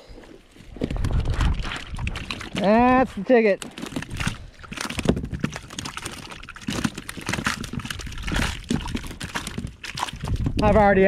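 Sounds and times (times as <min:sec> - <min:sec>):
water dripping and splashing: 0:00.6 - 0:11.0.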